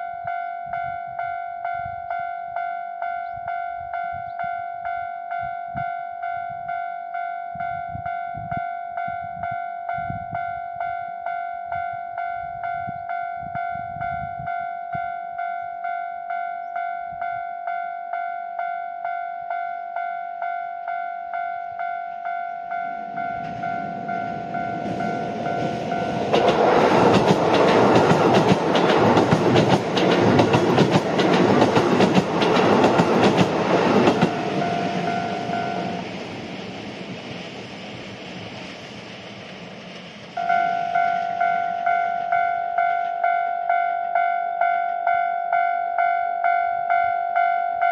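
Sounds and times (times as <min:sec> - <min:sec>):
level-crossing warning bell: 0:00.0 - 0:36.2, 0:40.4 - 0:47.9
train wheels clattering on rails: 0:22.8 - 0:43.9.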